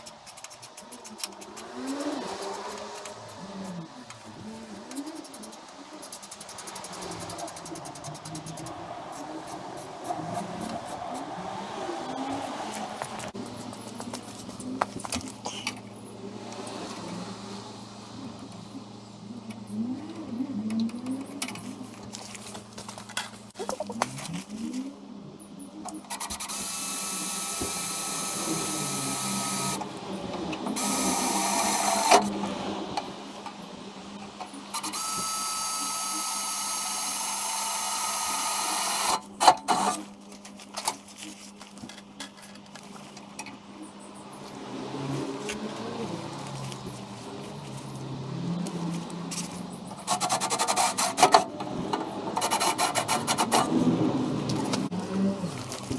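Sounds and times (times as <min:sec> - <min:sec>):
cordless drill running: 0:26.4 - 0:29.8, 0:30.8 - 0:32.1, 0:34.8 - 0:39.2.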